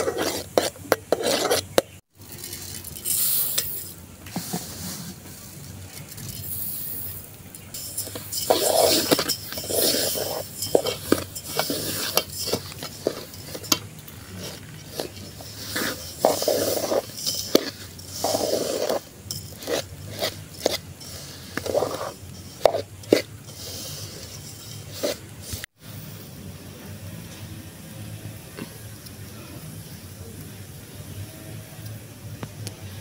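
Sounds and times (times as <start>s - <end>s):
seeds swishing in saucepan: 0.0s - 26.3s.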